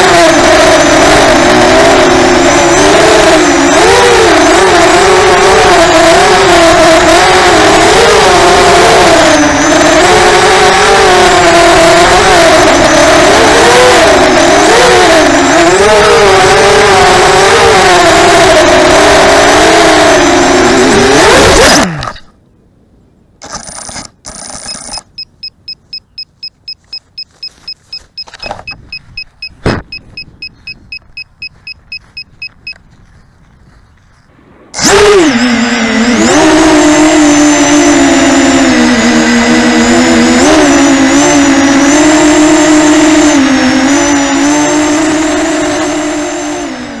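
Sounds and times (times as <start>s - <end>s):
drone motors whining: 0.0s - 22.3s, 23.4s - 47.0s
high electronic beeps: 24.5s - 32.8s
drone crashing into grass: 29.6s - 29.9s
sharp knock: 29.6s - 29.9s.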